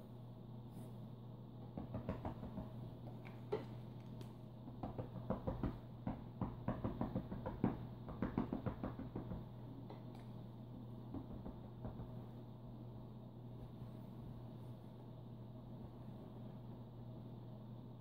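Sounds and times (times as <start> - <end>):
stick toy tapping bed covers: 1.6 - 10.1, 11.0 - 12.4.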